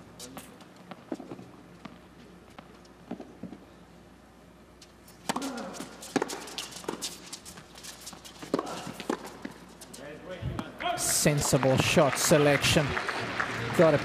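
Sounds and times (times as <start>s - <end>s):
players' footsteps: 4.8s - 14.0s
tennis ball bouncing: 5.2s - 7.2s, 8.1s - 9.6s
racket striking ball: 5.3s - 7.0s.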